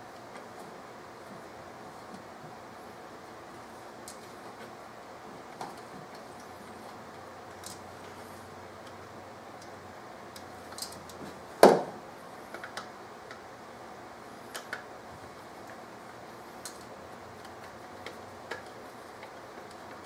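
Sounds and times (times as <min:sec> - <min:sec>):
louder knock: 0:11.6 - 0:12.0.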